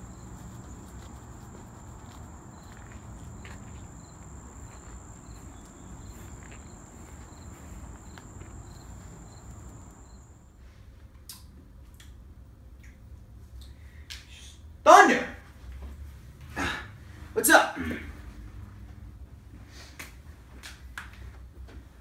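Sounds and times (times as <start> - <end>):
insects droning: 0.0 - 10.5
short insect chirp: 0.0 - 10.5
low outdoor rumble: 0.0 - 13.9.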